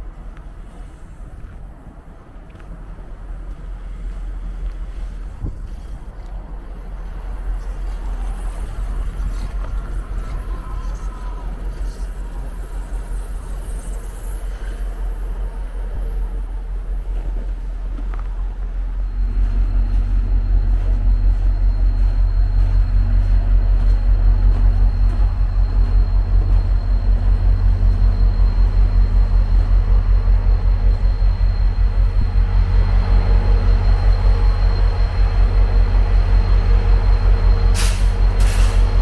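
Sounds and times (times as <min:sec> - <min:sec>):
diesel locomotive engine throbbing: 0:00.0 - 0:39.0
air release hisses: 0:37.8 - 0:38.9.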